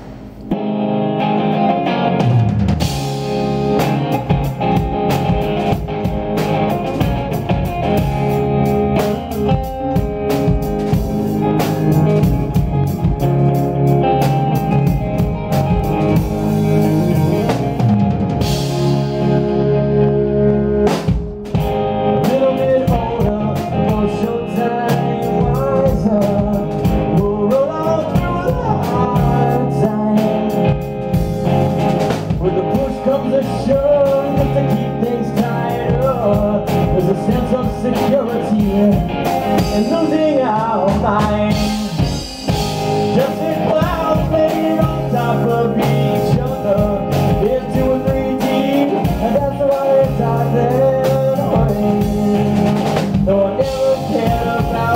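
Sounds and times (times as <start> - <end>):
drum kit: 0.0 - 54.9
electric bass: 0.0 - 54.9
electric guitar: 0.0 - 54.9
man singing: 22.0 - 31.2, 32.3 - 54.9.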